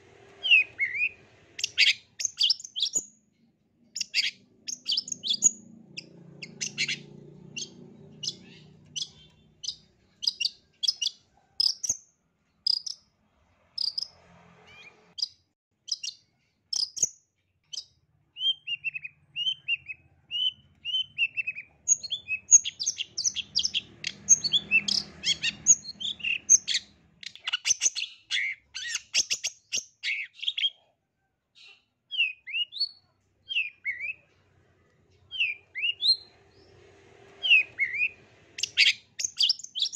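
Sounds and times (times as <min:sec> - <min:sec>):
bird singing sharp chirps: 0:00.4 - 0:03.2, 0:04.0 - 0:12.0, 0:12.7 - 0:13.0, 0:13.8 - 0:17.1, 0:17.7 - 0:30.8, 0:32.1 - 0:34.2, 0:35.3 - 0:36.8, 0:37.4 - 0:39.9.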